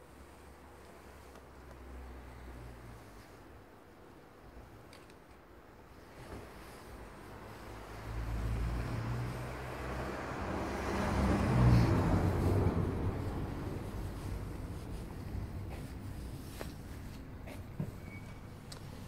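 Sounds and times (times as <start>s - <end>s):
vehicle engine passing by: 7.1s - 15.6s.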